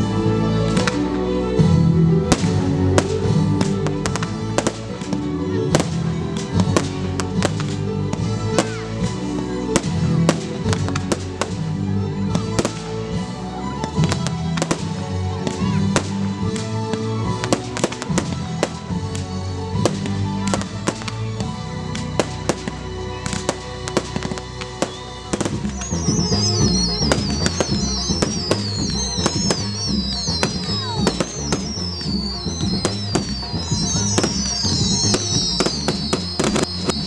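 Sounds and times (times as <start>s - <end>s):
fireworks bangs and crackles: 0.0s - 37.0s
music: 0.0s - 37.0s
firework whistles falling in pitch: 23.5s - 37.0s.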